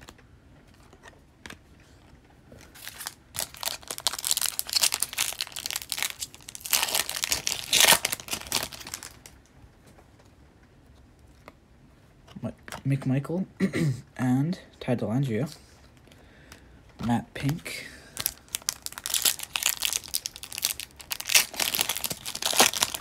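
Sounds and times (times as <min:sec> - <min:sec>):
foil wrapper tearing and crinkling: 0:02.7 - 0:09.3, 0:18.2 - 0:23.0.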